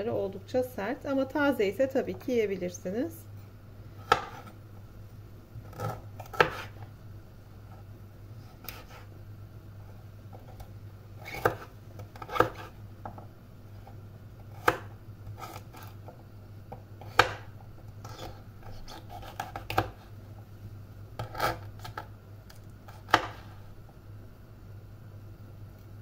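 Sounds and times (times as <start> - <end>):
low steady hum: 0.0 - 26.0
knife chopping on wooden board: 4.0 - 4.6, 5.7 - 6.8, 8.6 - 9.1, 11.2 - 13.2, 14.5 - 15.9, 17.0 - 17.5, 18.1 - 20.0, 22.9 - 23.5
knife scraping cuts: 5.7 - 6.8, 8.4 - 9.1, 11.2 - 12.8, 14.6 - 16.0, 18.0 - 20.1, 21.2 - 22.1, 22.9 - 23.6.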